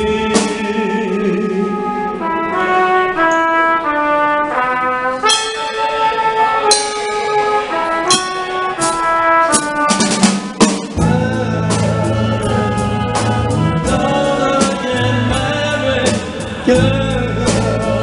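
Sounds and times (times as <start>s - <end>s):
drum kit: 0.0s - 18.0s
trumpet melody: 0.0s - 18.0s
cymbals struck: 5.1s - 11.1s.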